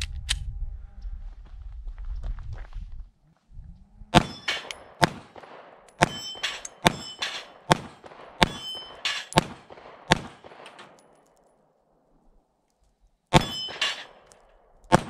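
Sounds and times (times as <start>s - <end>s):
steel plate targets ringing: 4.2s - 5.0s, 6.0s - 7.8s, 8.4s - 9.4s, 13.3s - 14.3s
pistol shots: 4.2s - 11.1s, 13.3s - 15.0s.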